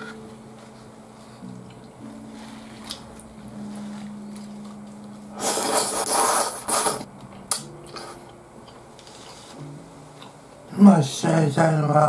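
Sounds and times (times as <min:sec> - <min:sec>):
loud noodle slurp: 0:05.4 - 0:07.1.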